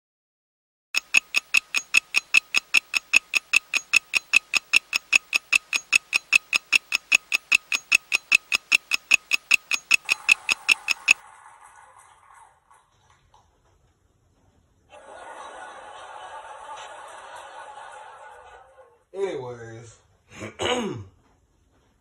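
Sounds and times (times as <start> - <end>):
clock-like ticking: 1.0 - 11.2.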